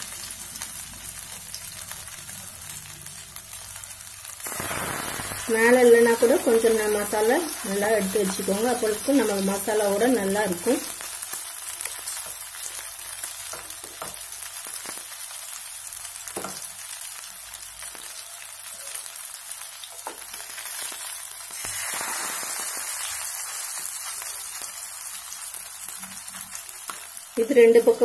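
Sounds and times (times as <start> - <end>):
fish sizzling in hot oil: 0.0 - 28.0.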